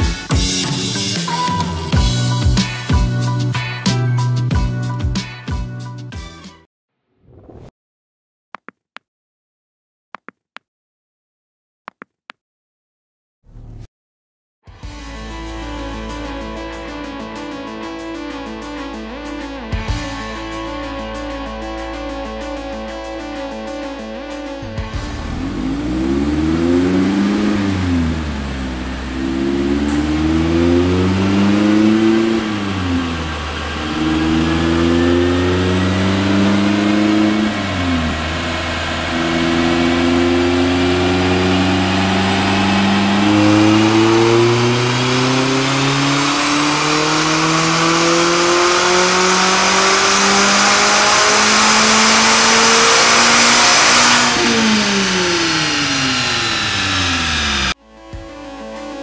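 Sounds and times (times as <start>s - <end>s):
car engine revving on dyno: 25.1s - 57.8s.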